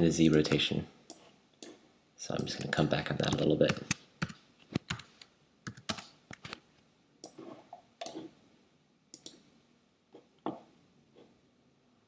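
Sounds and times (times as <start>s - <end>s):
mouse and keyboard clicks: 7.2s - 8.3s.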